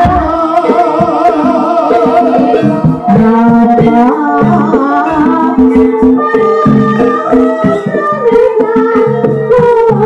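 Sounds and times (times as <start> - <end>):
amplified singing: 0.0 - 10.0
hand drum strokes: 0.0 - 10.0.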